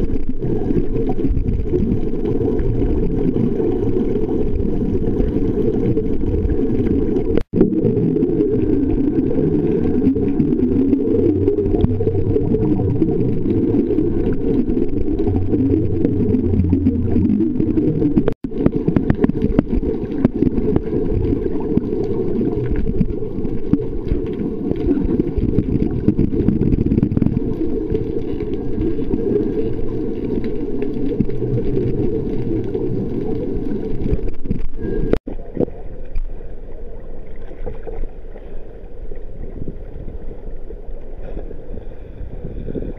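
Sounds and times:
muffled underwater rumble: 0:00.0 - 0:42.9.

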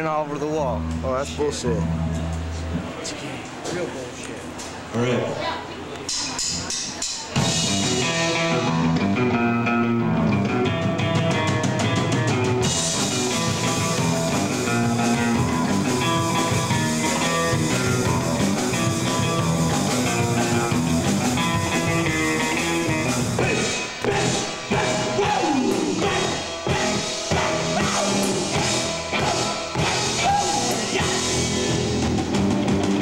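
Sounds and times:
bass guitar: 0:00.0 - 0:03.0, 0:07.4 - 0:33.0
drum kit: 0:06.1 - 0:33.0
electric guitar: 0:07.4 - 0:33.0.

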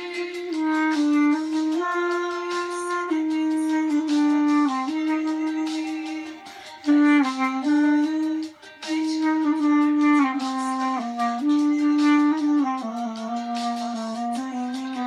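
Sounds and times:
clarinet slow melody: 0:00.0 - 0:15.0.

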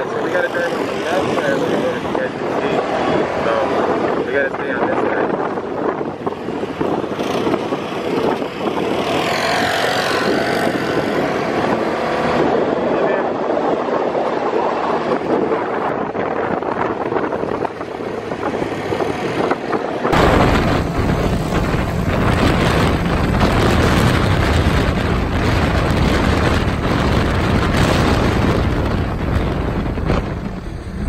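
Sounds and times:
wind buffeting on microphone: 0:00.0 - 0:31.0
buggy engine running: 0:20.2 - 0:31.0.

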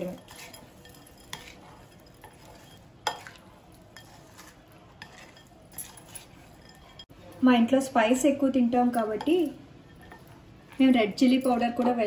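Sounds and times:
crunchy scraping in a glass bowl: 0:00.0 - 0:07.1.

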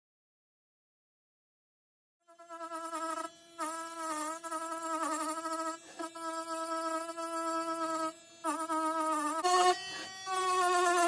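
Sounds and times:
rotary tool whining on metal: 0:03.1 - 0:11.0.

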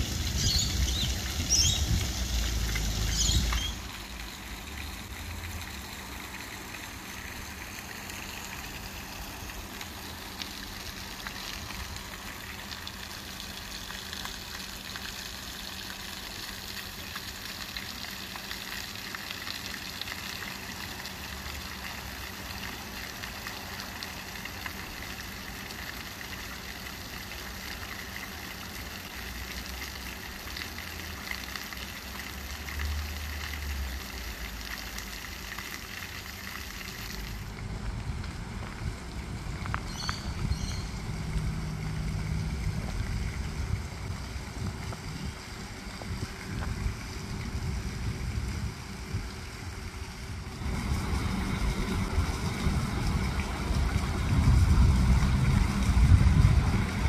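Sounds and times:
wind rumble on microphone: 0:00.0 - 0:03.7, 0:37.5 - 0:57.0
running water splashing: 0:00.0 - 0:57.0.

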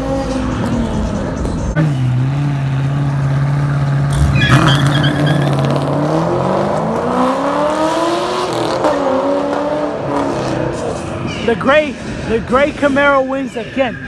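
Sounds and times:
cars accelerating: 0:00.0 - 0:14.0.

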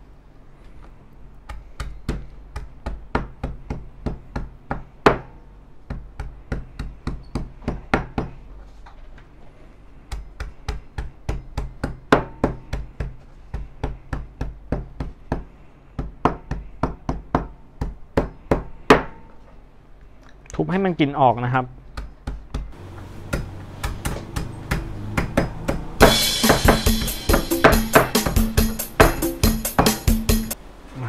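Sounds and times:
pounding knocks: 0:22.6 - 0:30.5.

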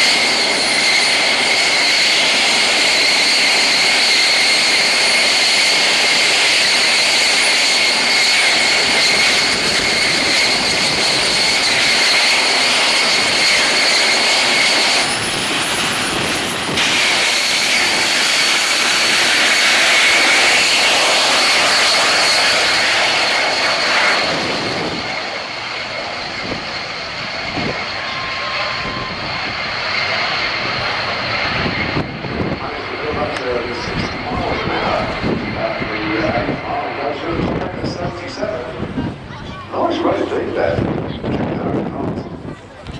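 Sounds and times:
turbojet engine whine and roar: 0:00.0 - 0:42.9.

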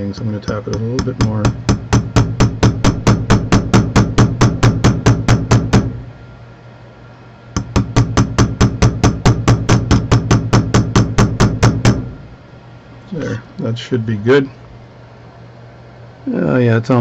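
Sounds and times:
small hammer tapping on metal: 0:00.0 - 0:05.9, 0:07.6 - 0:12.0.

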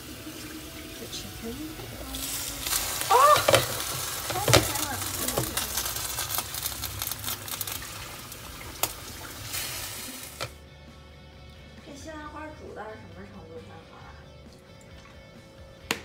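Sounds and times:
chicken sizzling in frying pan: 0:00.0 - 0:10.6.

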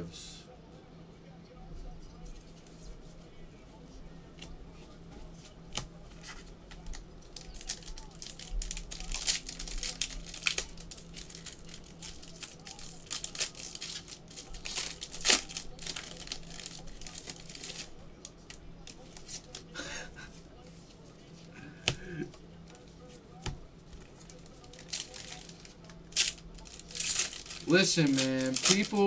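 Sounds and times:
foil wrappers tearing and crinkling: 0:06.8 - 0:19.8, 0:24.0 - 0:29.0.

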